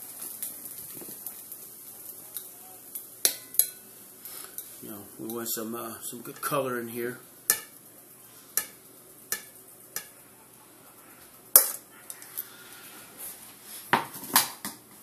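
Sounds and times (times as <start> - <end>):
metal tongs clinking on dishes: 2.3 - 3.8, 8.6 - 10.2, 11.5 - 12.2.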